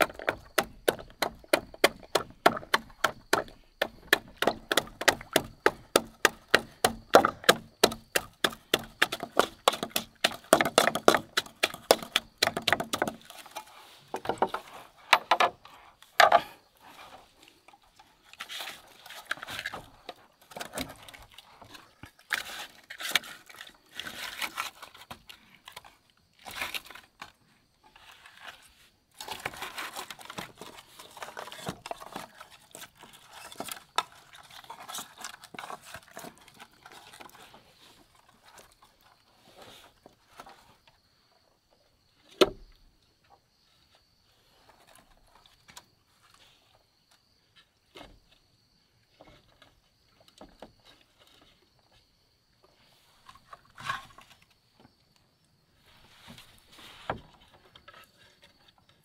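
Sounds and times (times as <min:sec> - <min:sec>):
wooden pestle pounding in metal pot: 0:00.0 - 0:13.2.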